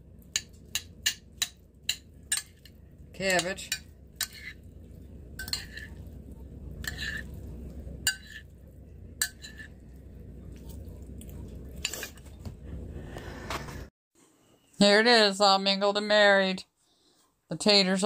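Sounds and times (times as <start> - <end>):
steady low hum: 0.0 - 13.9
cutlery clinking on ceramic dish: 5.4 - 6.0, 8.1 - 8.4, 9.2 - 9.7.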